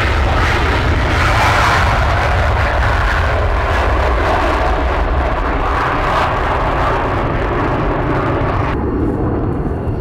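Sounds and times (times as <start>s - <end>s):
jets taking off roaring: 0.0s - 10.0s.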